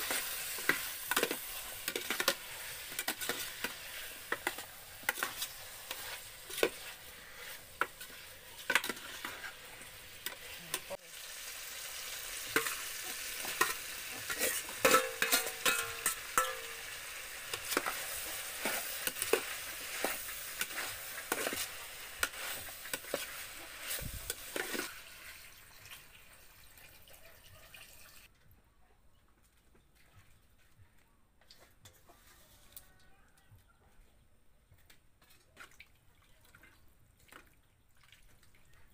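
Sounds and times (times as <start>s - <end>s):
utensil scraping a pan: 0.0s - 11.0s, 12.5s - 25.0s
food sizzling in a pan: 0.0s - 28.3s.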